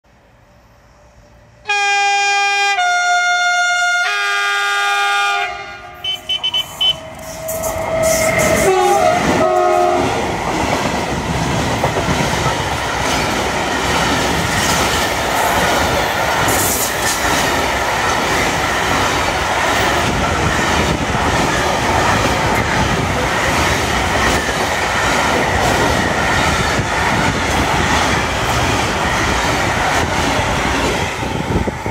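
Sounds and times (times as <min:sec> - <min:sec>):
locomotive horn blast: 0:01.6 - 0:10.2
train wheels rumbling on rails: 0:05.8 - 0:31.9.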